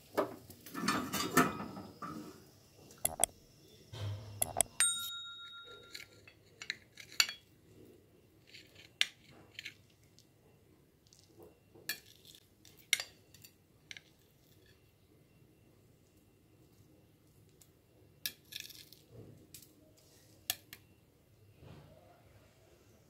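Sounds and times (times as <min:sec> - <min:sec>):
knife scraping ceramic plate: 0:05.9 - 0:07.5, 0:08.4 - 0:09.9.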